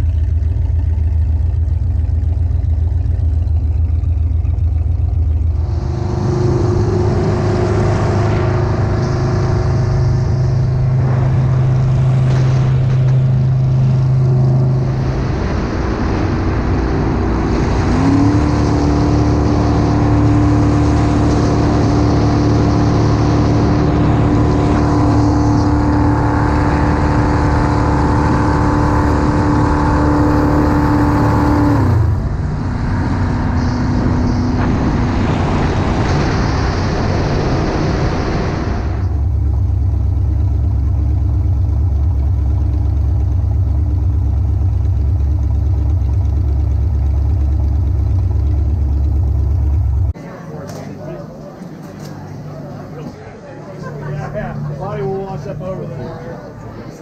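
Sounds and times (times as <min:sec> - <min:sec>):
jet boat engine running: 0:00.0 - 0:57.0
wind: 0:00.0 - 0:57.0
water rushing: 0:02.8 - 0:40.2.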